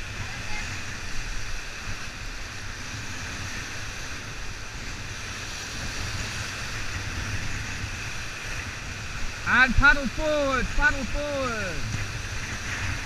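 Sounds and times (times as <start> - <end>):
whitewater rapids rushing: 9.0 - 12.2.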